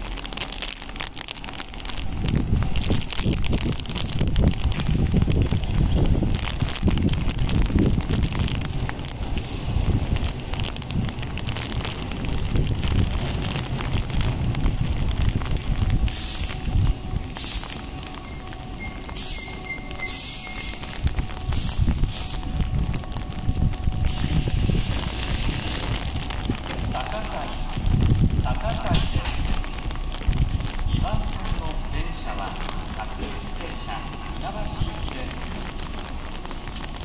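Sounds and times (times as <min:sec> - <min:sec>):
train wheels rumbling on rails: 0:00.0 - 0:37.0
high brake squeal: 0:18.3 - 0:20.9
air-brake hisses: 0:19.2 - 0:20.8.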